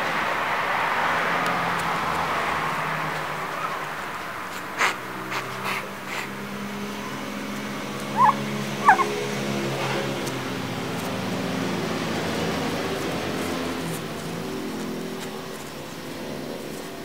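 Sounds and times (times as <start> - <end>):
kitten mewing: 8.1 - 9.2.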